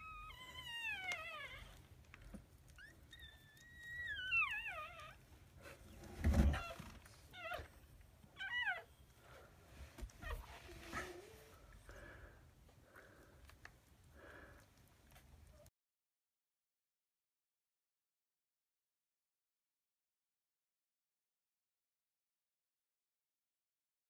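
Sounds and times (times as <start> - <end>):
puppies crying: 0.0 - 5.3, 6.4 - 9.2.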